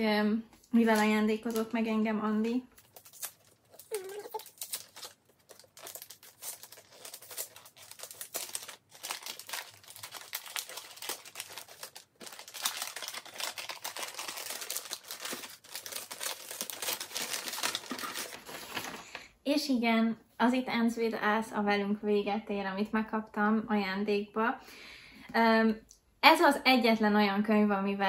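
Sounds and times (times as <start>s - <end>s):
wrapping paper crinkling and tearing: 2.7s - 19.0s.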